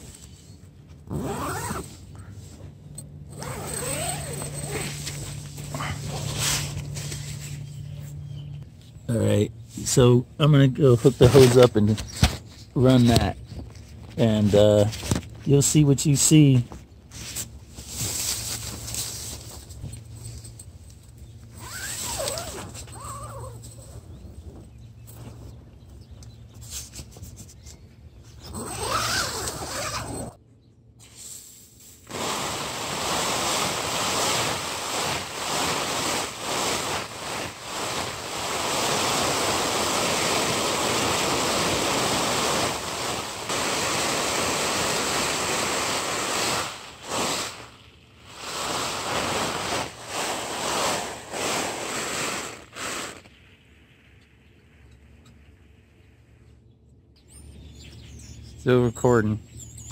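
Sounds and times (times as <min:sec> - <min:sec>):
hose spray pattering on tent: 0:00.0 - 0:08.2, 0:10.8 - 0:25.5, 0:28.3 - 0:30.1, 0:31.0 - 0:53.6.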